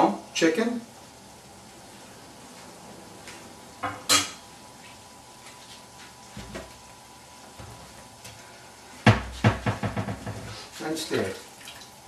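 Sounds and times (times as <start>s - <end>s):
pot simmering: 0.2s - 12.0s
spoon striking a pot: 3.8s - 4.4s.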